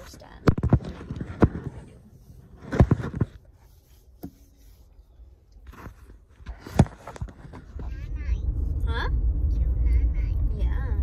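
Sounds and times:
phone handling knocks and rubs: 0:02.5 - 0:03.4.

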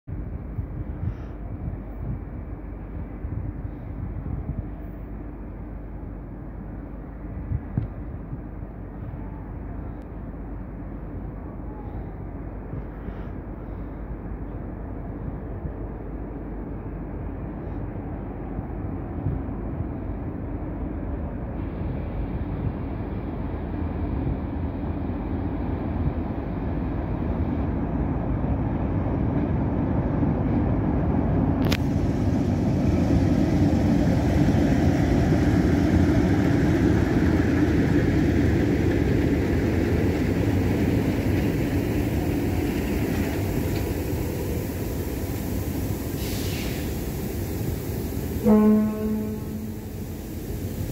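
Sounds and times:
diesel locomotive engine rumble: 0:00.0 - 0:50.9
train coaches rolling by: 0:00.1 - 0:50.9.

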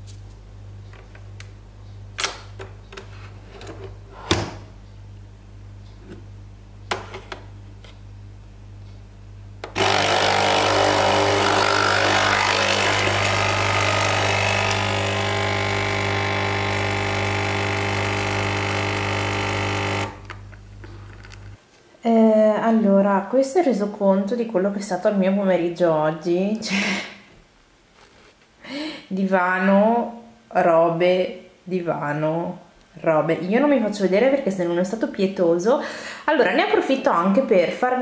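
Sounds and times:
coffee machine pump buzzing: 0:09.6 - 0:21.6.

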